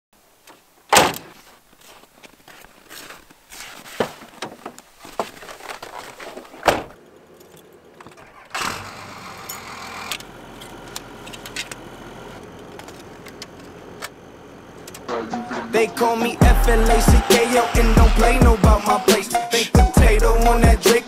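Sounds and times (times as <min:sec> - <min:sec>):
footsteps: 0:00.4 - 0:08.4
keys in ignition: 0:07.0 - 0:08.6, 0:09.4 - 0:15.2
pickup engine starting and idling: 0:07.0 - 0:21.0.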